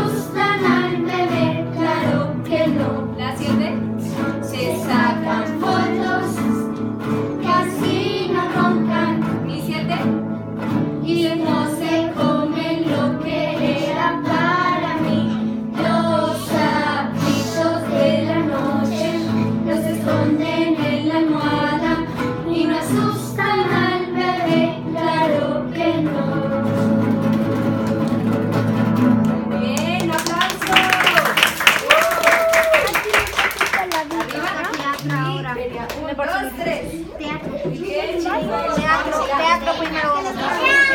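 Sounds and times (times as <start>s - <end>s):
children singing: 0.0s - 9.6s, 11.0s - 28.5s, 37.4s - 40.9s
children strumming acoustic guitars: 0.0s - 31.4s, 33.8s - 40.9s.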